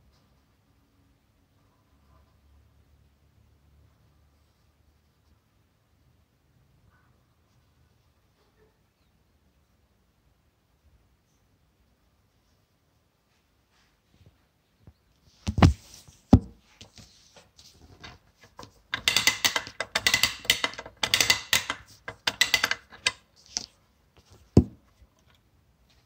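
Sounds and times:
clockwork toy rattling clicks: 19.0 - 23.2.

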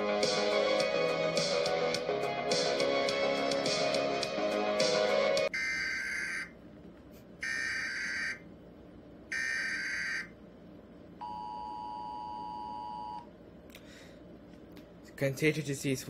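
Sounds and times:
two-tone buzzing alert signal: 9.3 - 10.3.

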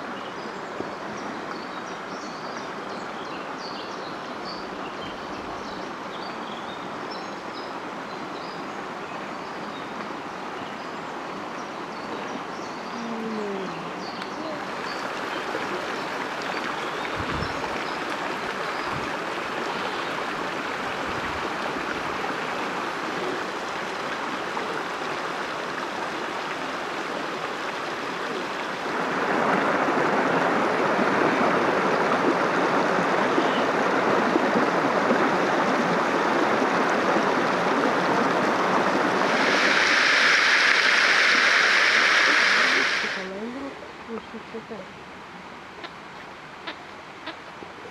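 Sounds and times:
water pouring and splashing: 14.6 - 43.3.

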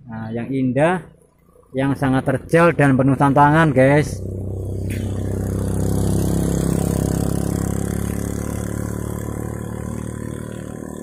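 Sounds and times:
vehicle passing on road: 0.8 - 11.0.

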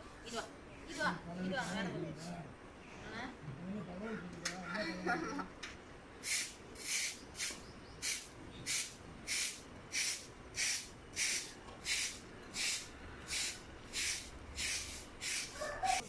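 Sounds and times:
broom sweeping road: 6.2 - 16.0.

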